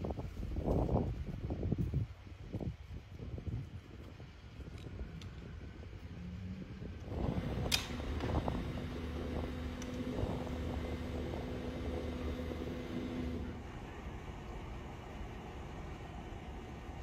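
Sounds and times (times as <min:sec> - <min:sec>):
engine running: 0:05.9 - 0:17.0
sharp click: 0:07.6 - 0:08.3.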